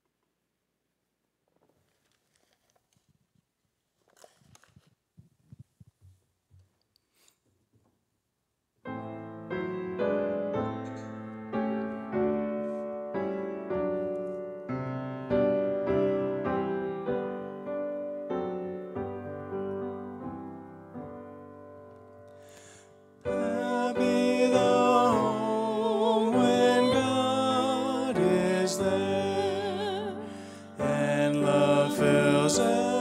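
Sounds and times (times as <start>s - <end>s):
grand piano playing: 8.8s - 33.0s
woman singing: 23.3s - 33.0s.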